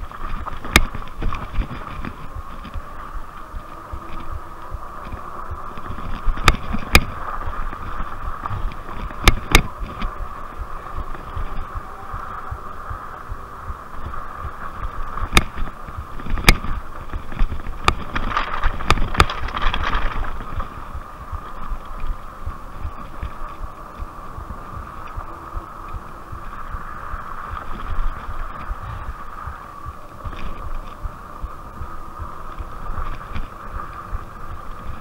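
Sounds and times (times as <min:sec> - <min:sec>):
bike knocking over rocks: 0:00.0 - 0:02.9, 0:14.8 - 0:26.0
electric bike motor whine: 0:00.0 - 0:35.0
tyres crunching on gravel: 0:00.0 - 0:35.0
tyres rumbling on dirt: 0:00.0 - 0:35.0.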